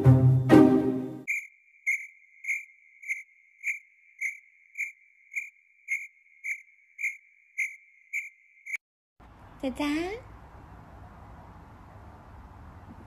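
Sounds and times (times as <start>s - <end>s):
pulsing high electronic tone: 1.3s - 8.8s.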